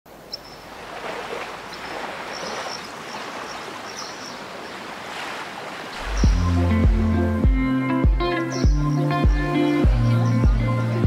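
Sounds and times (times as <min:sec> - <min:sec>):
sea water washing: 0:00.6 - 0:07.3.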